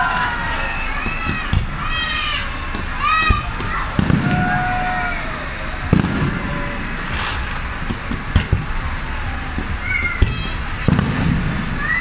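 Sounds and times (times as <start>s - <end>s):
fireworks hissing and crackling: 0.0s - 12.0s
firework shells bursting: 2.8s - 4.7s, 5.8s - 9.0s, 10.8s - 11.8s.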